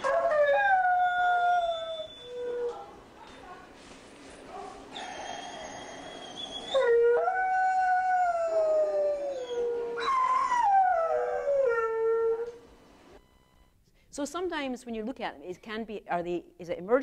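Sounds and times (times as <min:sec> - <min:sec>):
dog whining: 0:00.0 - 0:03.0, 0:04.9 - 0:12.5
dog howling: 0:04.9 - 0:12.6.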